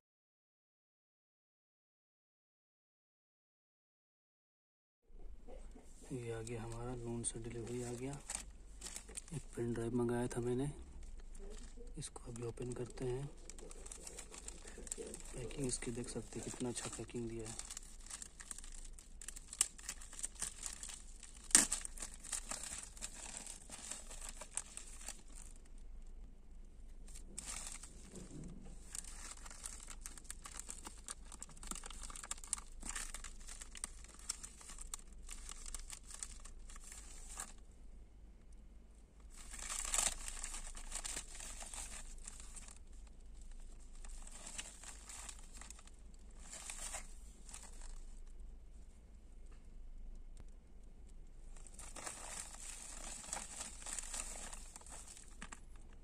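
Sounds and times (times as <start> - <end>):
plastic bag crinkling and tearing: 6.2 - 25.8, 27.1 - 37.6, 39.3 - 48.3, 51.5 - 56.0.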